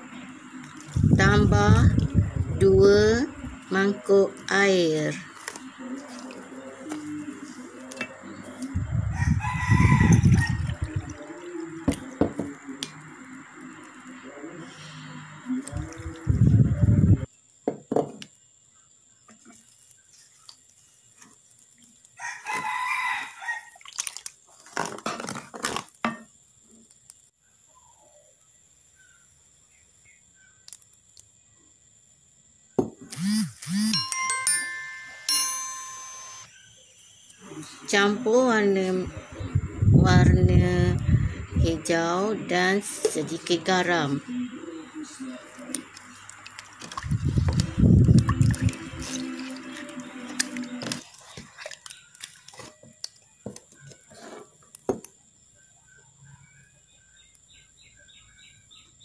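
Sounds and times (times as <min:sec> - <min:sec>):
rooster crowing: 0:08.9 - 0:11.2, 0:22.2 - 0:23.8
chiming jingle: 0:33.9 - 0:36.5.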